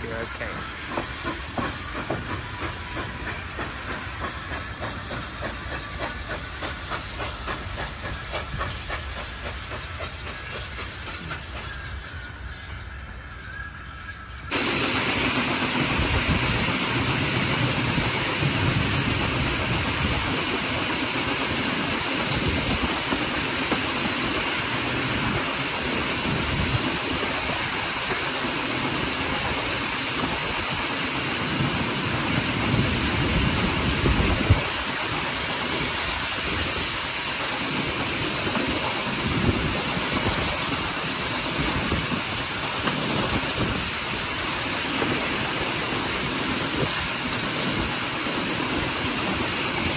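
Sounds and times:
steam locomotive exhaust and running gear: 0:00.0 - 0:49.9.

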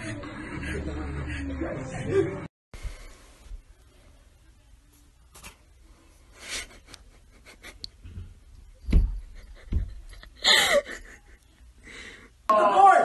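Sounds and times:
person laughing breathily: 0:09.3 - 0:12.4.

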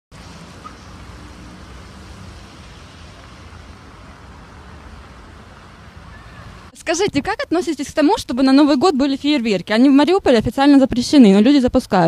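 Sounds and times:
cars driving past: 0:00.1 - 0:06.8
engine rumble: 0:00.1 - 0:06.8.

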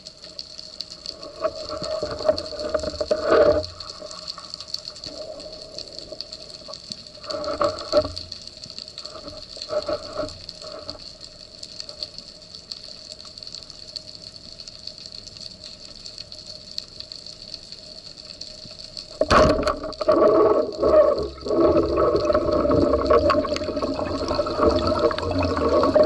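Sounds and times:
underwater water noise: 0:00.0 - 0:26.0
water gushing: 0:00.7 - 0:12.3, 0:19.0 - 0:26.0.

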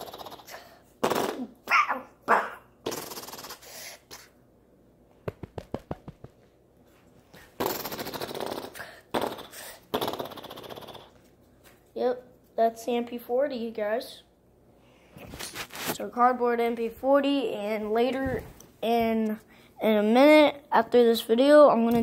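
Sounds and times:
boy imitating gunfire with mouth: 0:00.0 - 0:04.4, 0:07.6 - 0:11.2.

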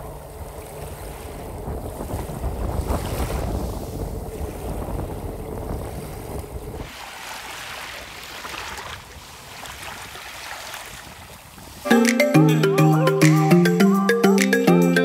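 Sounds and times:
wind buffeting microphone: 0:00.0 - 0:06.9
surf washing on beach: 0:00.9 - 0:12.1.

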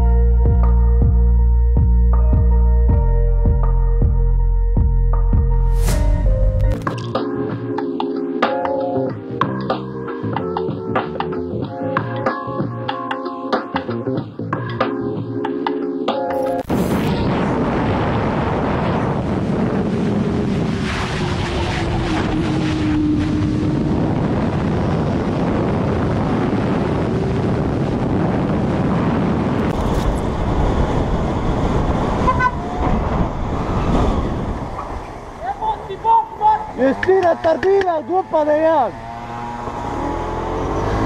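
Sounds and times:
heavy wind rush: 0:16.6 - 0:41.0.

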